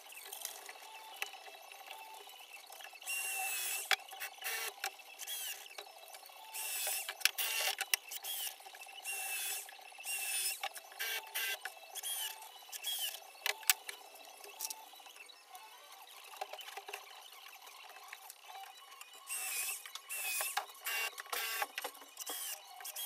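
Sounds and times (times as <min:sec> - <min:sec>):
power drill whining: 0:03.1 - 0:05.8, 0:06.4 - 0:13.2, 0:19.3 - 0:23.0.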